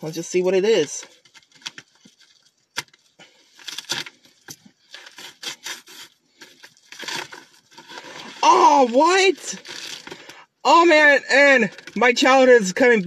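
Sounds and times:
plastic packaging crinkling and tearing: 0.7 - 10.5.

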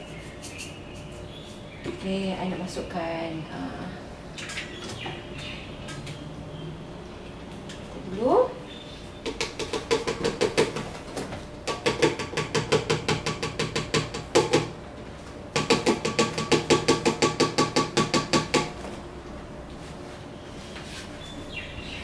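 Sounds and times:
mixer knocking on metal bowl: 9.2 - 11.0, 11.6 - 14.8, 15.5 - 18.8.

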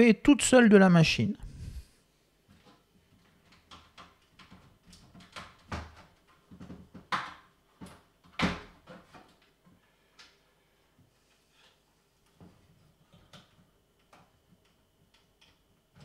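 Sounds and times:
clicks and knocks of computer parts: 2.6 - 9.6.

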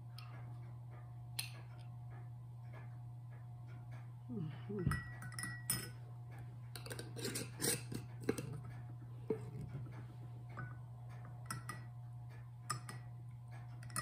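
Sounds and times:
low steady hum: 0.0 - 14.0
teaspoon clinking against teacup: 4.8 - 6.0, 10.5 - 11.9, 12.6 - 13.1, 13.8 - 14.0.

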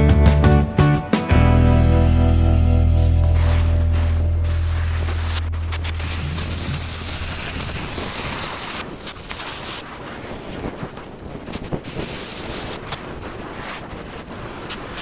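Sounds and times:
wind buffeting microphone: 4.0 - 15.0.

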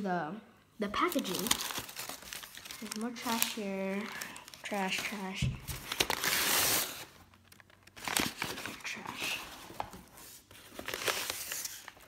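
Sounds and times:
newspaper rustling and crinkling: 0.9 - 12.0.

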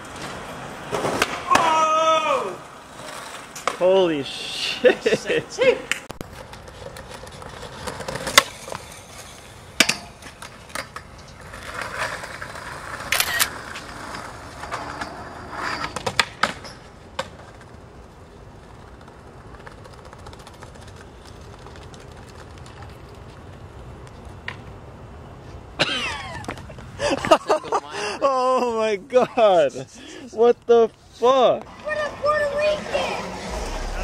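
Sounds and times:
skateboard wheels rolling on concrete: 0.0 - 34.0
skateboard scraping metal rail: 2.8 - 3.8, 6.3 - 17.6, 31.7 - 34.0
skateboard clacks: 15.8 - 24.7.

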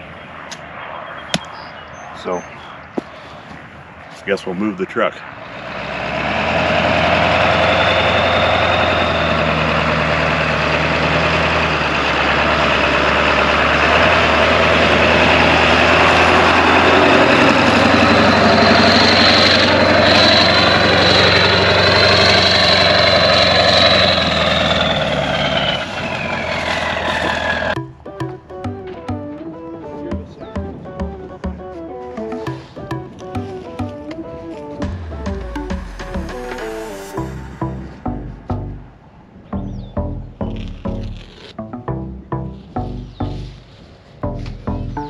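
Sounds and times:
truck engine running: 5.5 - 29.5, 30.1 - 45.0
high whine: 6.7 - 10.8, 12.6 - 45.0
guitar music: 27.8 - 45.0.

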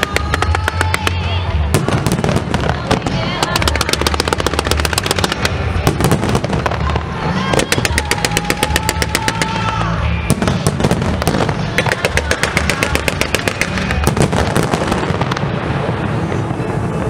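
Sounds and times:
fireworks reports: 0.0 - 17.0.

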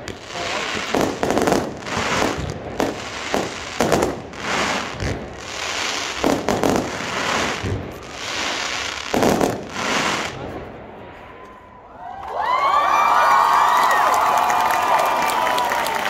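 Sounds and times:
fireworks bursting with crackling hiss: 0.0 - 11.5.

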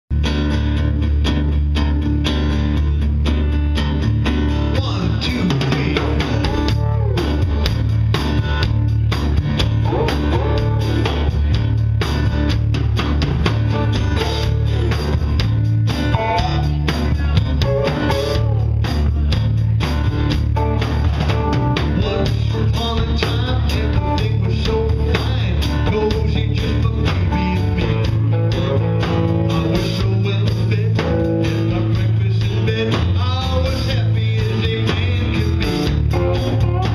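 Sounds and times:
drums: 0.1 - 36.9
electric guitar: 0.1 - 36.9
low bass line: 0.1 - 36.9
acoustic guitar strumming: 0.2 - 36.9.

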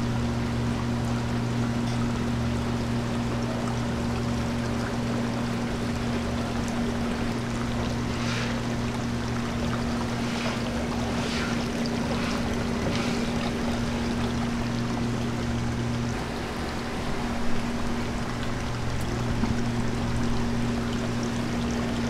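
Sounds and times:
tank pumps humming: 0.0 - 22.0
water rushing and bubbling: 0.0 - 22.0
soft hissing: 7.5 - 14.6.

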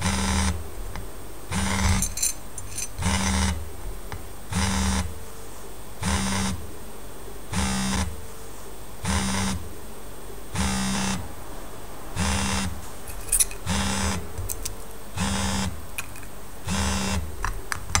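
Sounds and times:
phones buzzing on glass: 0.0 - 5.2, 6.0 - 6.7, 7.5 - 8.2, 9.0 - 9.6, 10.5 - 11.2, 12.2 - 18.0.

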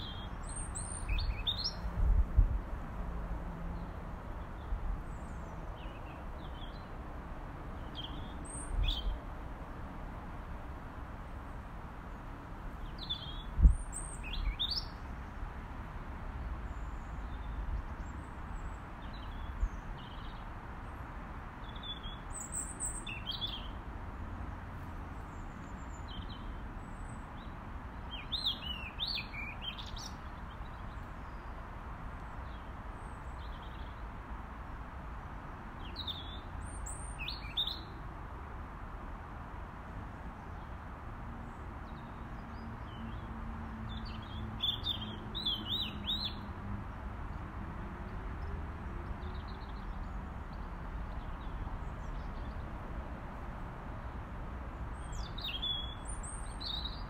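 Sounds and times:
robin calling: 0.0 - 1.9, 44.0 - 46.5, 55.0 - 57.0.

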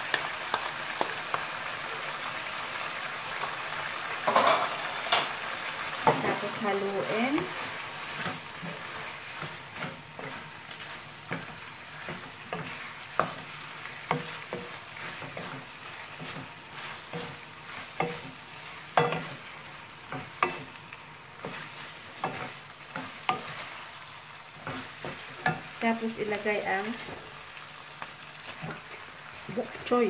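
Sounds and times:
food sizzling in a wok: 0.0 - 30.0
wooden spatula scraping and knocking: 6.0 - 20.8, 21.4 - 23.9, 24.6 - 27.4.

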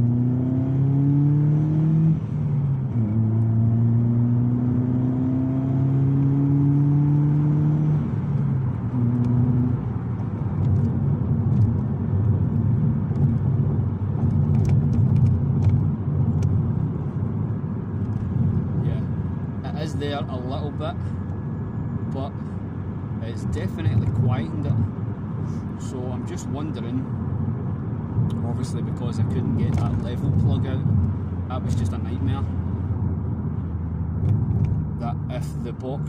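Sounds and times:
car engine revving: 0.0 - 36.0
road noise: 0.0 - 36.0.

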